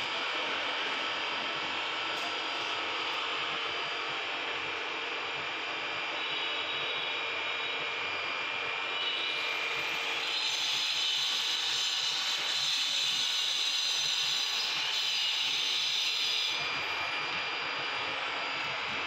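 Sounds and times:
mechanical whir with hiss: 0:08.9 - 0:19.0.

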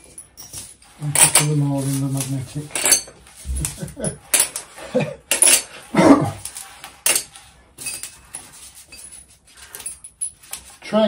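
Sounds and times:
bolts clinking into metal tray: 0:02.2 - 0:03.2, 0:05.3 - 0:05.7.

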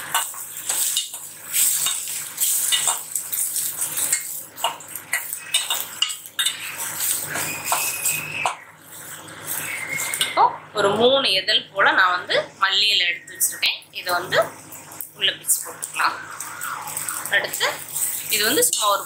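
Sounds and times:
steel spatula scraping a pan: 0:05.1 - 0:10.3.

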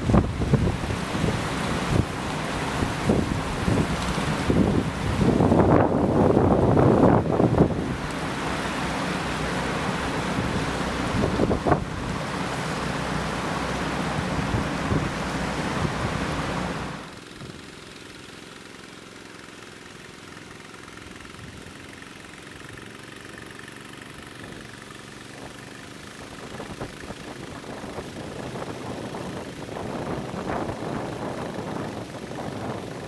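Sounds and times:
wind on microphone: 0:00.0 - 0:08.1, 0:10.0 - 0:12.4, 0:14.0 - 0:17.6, 0:26.2 - 0:33.0
floodwater rushing: 0:00.0 - 0:33.0
water pump engine running: 0:00.0 - 0:33.0.

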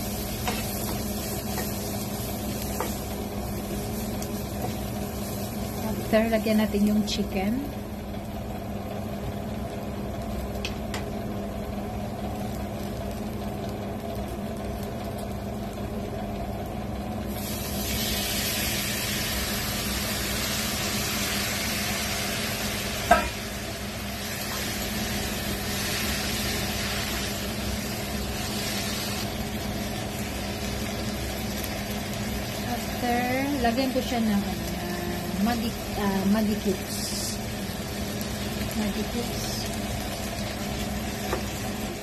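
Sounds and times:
chicken sizzling in a pan: 0:00.0 - 0:07.5, 0:17.2 - 0:42.0
induction cooker hum: 0:00.0 - 0:42.0.

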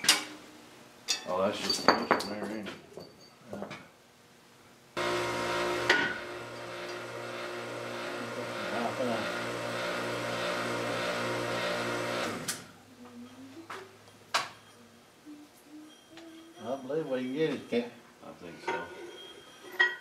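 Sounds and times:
hydraulic press pump motor: 0:05.0 - 0:12.6.

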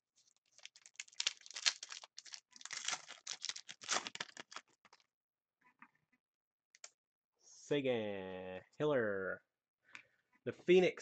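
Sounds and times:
foil wrapper crinkling: 0:00.4 - 0:05.0.

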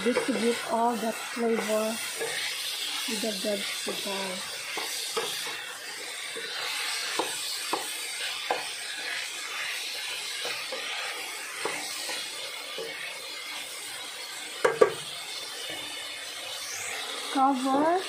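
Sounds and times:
vegetables sizzling in a pan: 0:00.0 - 0:18.0
wooden spatula knocking on pan: 0:07.2 - 0:07.9, 0:14.6 - 0:15.0.

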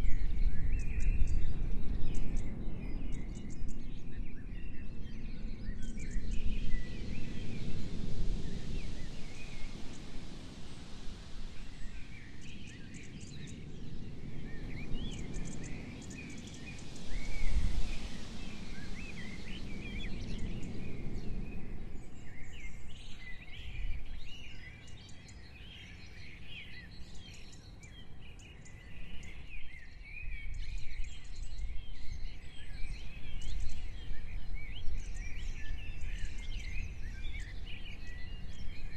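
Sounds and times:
birds chirping and singing: 0:11.6 - 0:38.9.

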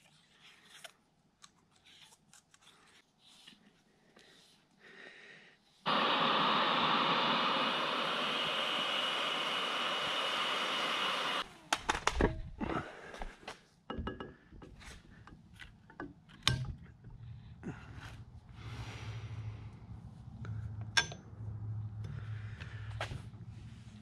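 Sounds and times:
power tool whining hiss: 0:05.9 - 0:11.5.

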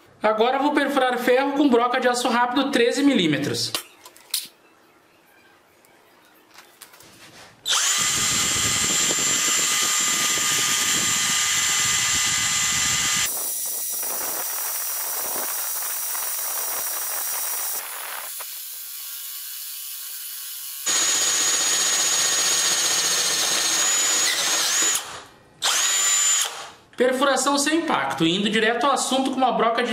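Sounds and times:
drill bit grinding into metal: 0:07.7 - 0:26.7
drill motor whine: 0:07.7 - 0:26.7.

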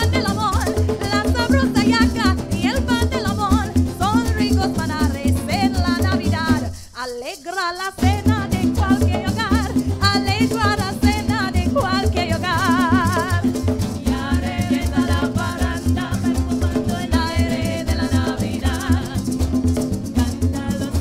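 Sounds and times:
strummed acoustic guitar: 0:00.0 - 0:06.7, 0:08.0 - 0:21.0
maracas shaking: 0:00.0 - 0:21.0
person singing with vibrato: 0:00.0 - 0:21.0
repeating bass line: 0:08.5 - 0:21.0.

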